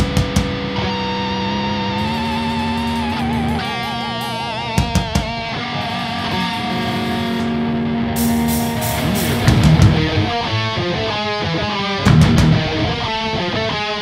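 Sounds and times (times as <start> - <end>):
distorted electric guitars: 0.0 - 14.0
cymbals crashing: 0.8 - 10.8
sharp drum hits: 2.0 - 7.6, 8.2 - 10.4.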